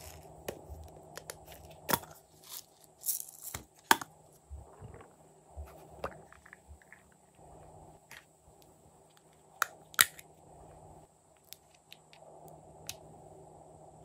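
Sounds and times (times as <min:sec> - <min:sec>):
sprinkles rattling: 0:02.4 - 0:03.6.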